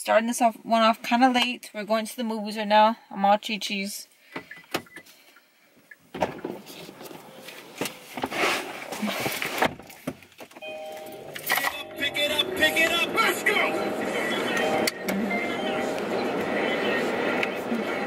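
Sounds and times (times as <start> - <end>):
car door opening: 6.1 - 8.4
steady tone: 10.6 - 18.0.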